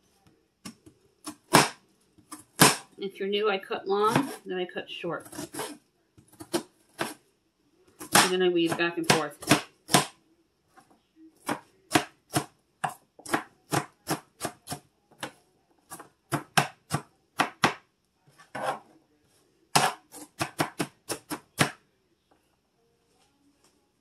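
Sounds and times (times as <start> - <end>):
knife chopping on cutting board: 1.3 - 2.9, 4.1 - 4.4, 6.4 - 7.2, 8.0 - 10.2, 11.4 - 15.3, 15.9 - 17.8, 19.7 - 21.8.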